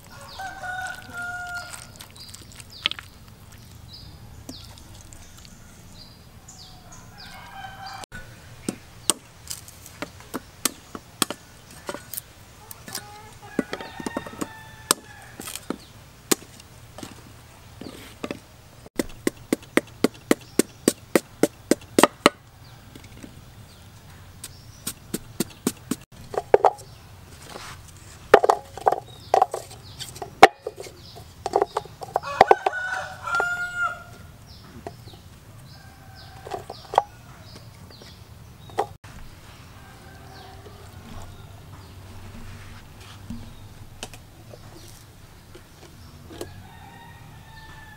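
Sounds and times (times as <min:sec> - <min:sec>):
rooster crowing: 0:00.0 - 0:02.0, 0:05.5 - 0:08.5, 0:13.1 - 0:15.5, 0:32.2 - 0:34.3, 0:35.5 - 0:37.6, 0:39.7 - 0:41.8, 0:46.4 - 0:47.9
chickens clucking: 0:11.6 - 0:14.9
cleaver chopping on wooden block: 0:19.0 - 0:22.4.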